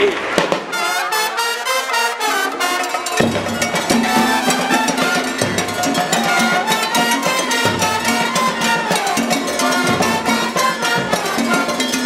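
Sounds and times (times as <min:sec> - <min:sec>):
trumpets: 0:00.0 - 0:12.0
cowbell beat: 0:00.7 - 0:12.0
bass drums and hand drums: 0:03.2 - 0:12.0.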